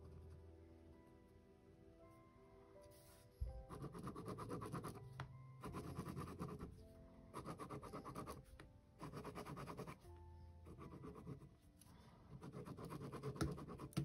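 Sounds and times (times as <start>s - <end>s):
pen scratching on paper: 2.9s - 5.0s, 5.6s - 10.0s, 10.6s - 11.6s, 12.3s - 14.0s
pen knocking on paper: 12.6s - 14.0s.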